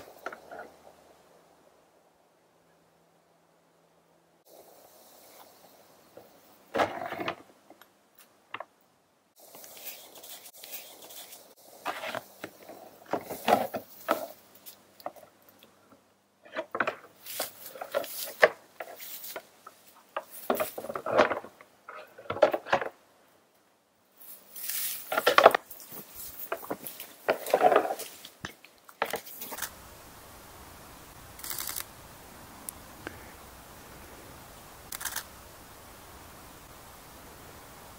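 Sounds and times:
antlers clacking and grinding: 0:25.0 - 0:29.6.

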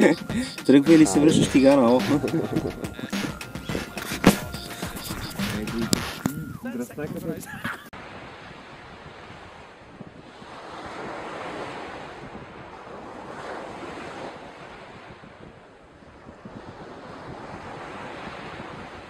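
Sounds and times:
surf washing on sandy beach: 0:08.0 - 0:15.6, 0:16.2 - 0:19.0.

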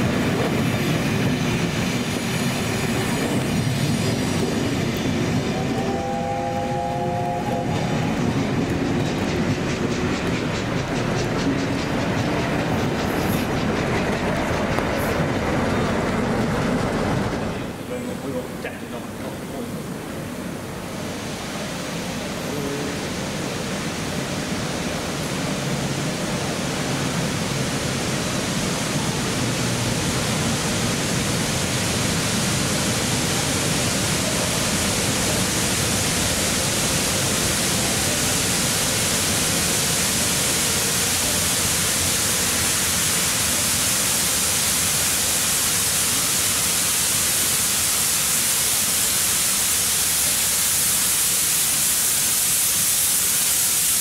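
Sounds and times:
steam locomotive hissing: 0:00.0 - 0:54.0.

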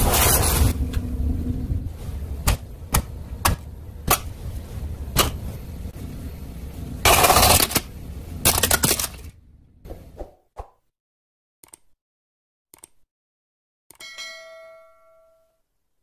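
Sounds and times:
rough noise: 0:00.0 - 0:08.0.

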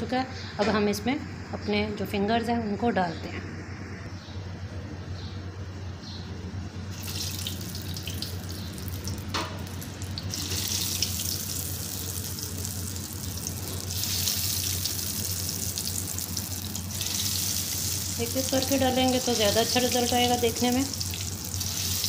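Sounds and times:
oil sizzling while deep frying: 0:06.9 - 0:22.0.

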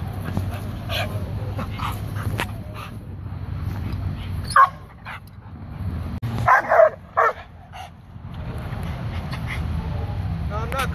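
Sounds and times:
dog barking: 0:04.5 - 0:04.8, 0:06.4 - 0:07.5.

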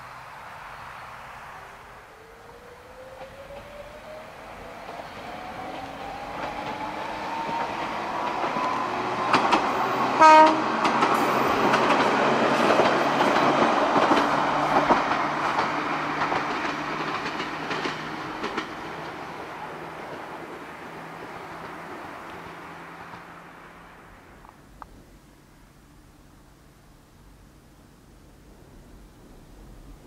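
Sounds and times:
train wheels clacking on rail joints: 0:04.7 - 0:23.4
train horn blast: 0:10.0 - 0:10.9.

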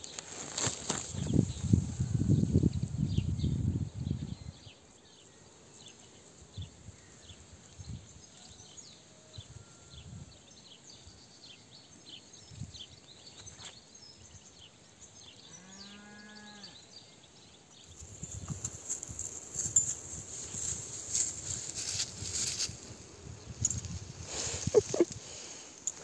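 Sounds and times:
tall grass rustling: 0:00.0 - 0:03.0, 0:17.9 - 0:26.0
small birds chirping: 0:10.6 - 0:26.0.

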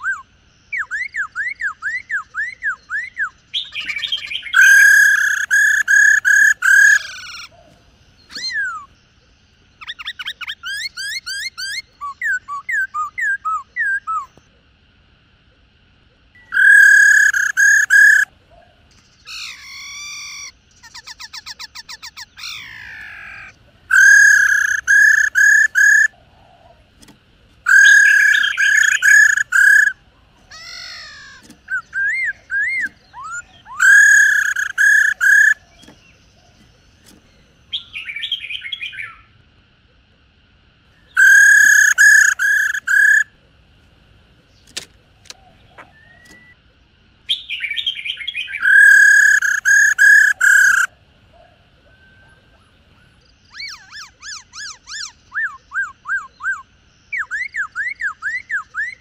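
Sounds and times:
harsh bird chattering: 0:00.0 - 0:09.0, 0:09.8 - 0:14.4, 0:16.4 - 0:18.3, 0:18.9 - 0:39.1, 0:41.0 - 0:43.4, 0:47.3 - 0:50.9, 0:53.4 - 0:59.0
birds singing ringing phrases: 0:00.0 - 0:39.4, 0:40.8 - 0:59.0
bird rattling trill: 0:03.6 - 0:07.5, 0:16.4 - 0:18.3, 0:19.4 - 0:26.2, 0:26.8 - 0:37.4, 0:41.2 - 0:43.3, 0:48.6 - 0:50.9.

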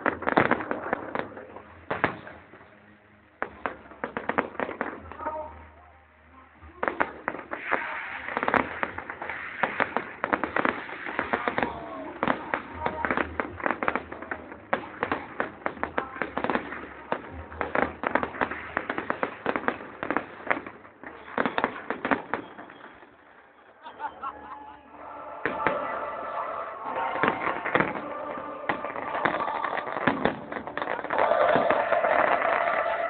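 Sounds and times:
fireworks bangs and crackles: 0:00.0 - 0:05.8, 0:06.5 - 0:24.3, 0:25.0 - 0:33.0.

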